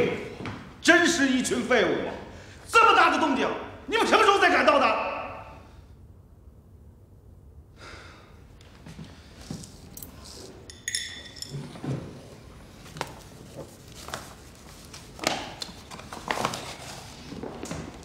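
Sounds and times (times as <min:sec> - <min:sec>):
short metallic ring: 0:10.7 - 0:11.7
paper bag rustling: 0:12.6 - 0:18.0.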